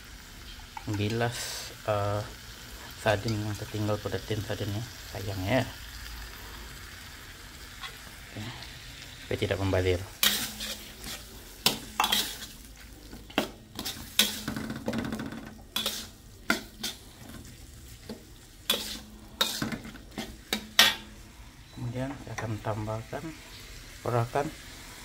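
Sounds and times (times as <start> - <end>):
low sizzle of frying food: 0.0 - 25.0
metal spatula scraping a wok: 10.1 - 21.2.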